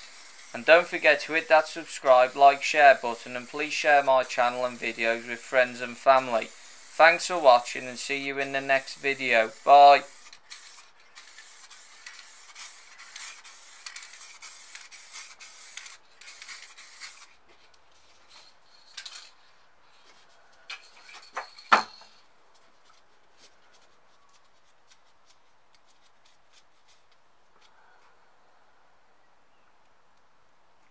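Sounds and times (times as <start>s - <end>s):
rubbing and scraping on surface: 22.6s - 27.2s.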